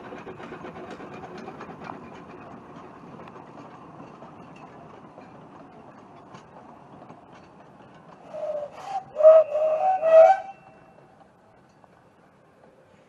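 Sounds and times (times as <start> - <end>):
faint train running noise: 0.0 - 13.0
steam locomotive whistle: 8.3 - 11.0.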